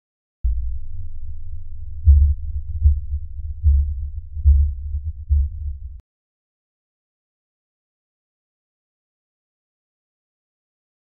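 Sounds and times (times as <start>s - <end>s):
very low hum: 0.5s - 6.0s.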